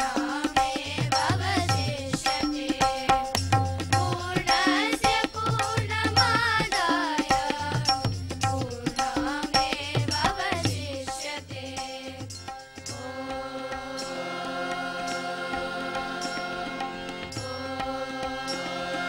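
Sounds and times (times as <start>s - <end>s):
girls singing in unison: 0.0s - 8.0s, 8.6s - 12.3s, 12.9s - 19.0s
tabla strokes: 0.0s - 19.0s
harmonium drone: 12.2s - 19.0s.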